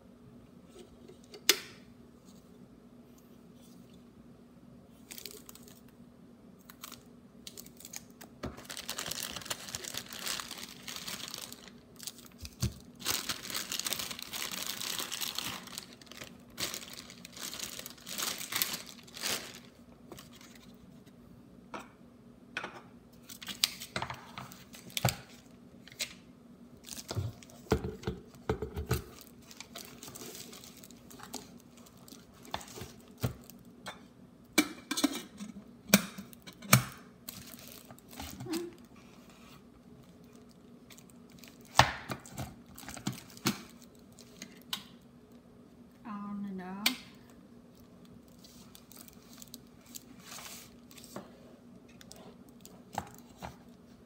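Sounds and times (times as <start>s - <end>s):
plastic wrap crinkling: 5.0s - 6.0s, 6.6s - 20.9s, 23.2s - 26.2s, 26.8s - 28.4s, 29.0s - 33.7s, 37.2s - 44.7s, 47.7s - 51.2s, 52.0s - 54.0s.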